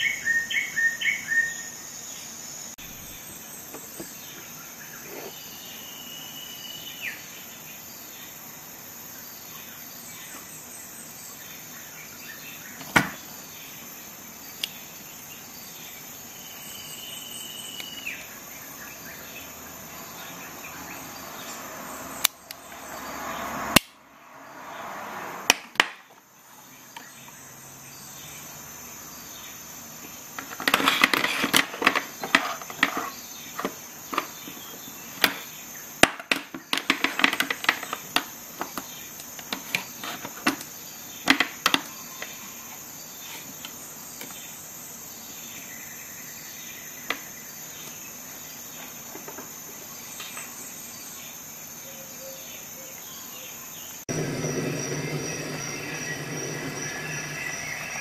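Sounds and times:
high-pitched drone: 54.1 - 58.0.

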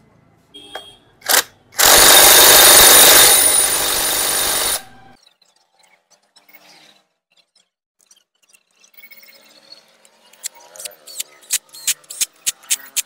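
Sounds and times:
impact wrench running: 1.3 - 5.2.

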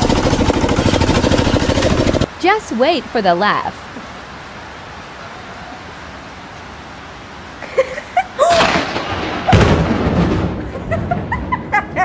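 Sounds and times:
heavy rain falling: 0.0 - 11.8
person's short cries: 8.2 - 8.9
loud thunder crack: 8.5 - 11.5.

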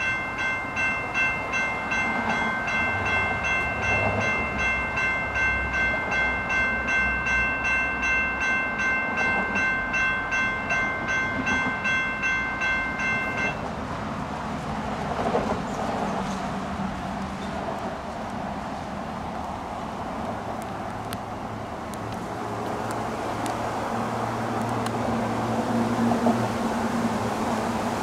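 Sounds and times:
railroad crossing bells ringing: 0.0 - 13.7.

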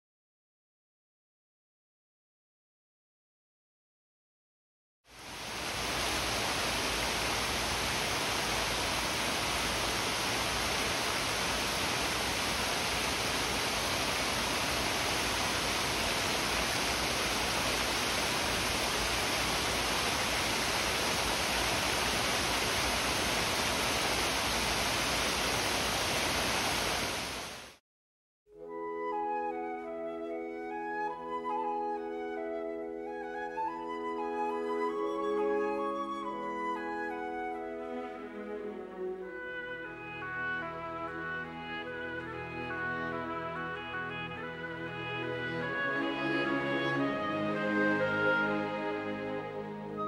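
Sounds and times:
heavy rain on foliage and paving: 5.1 - 27.8.

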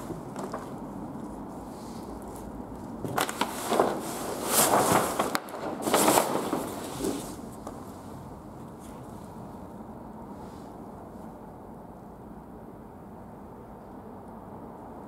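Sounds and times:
paper and cardboard rustling: 2.4 - 7.8.

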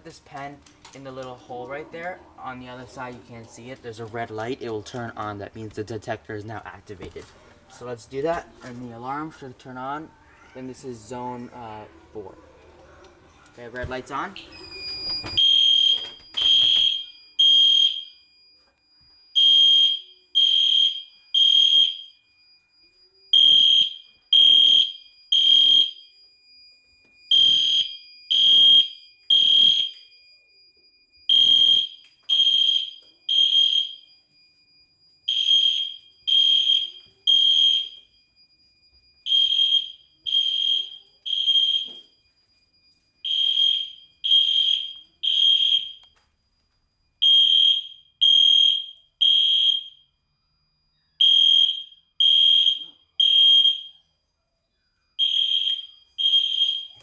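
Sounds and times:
fire alarm horn beeping: 14.4 - 54.2, 55.1 - 57.0.

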